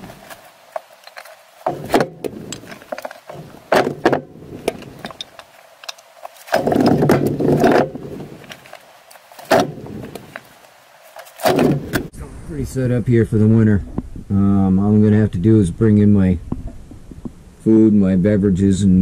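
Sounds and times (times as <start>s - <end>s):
logs knocking together: 0.0s - 12.1s.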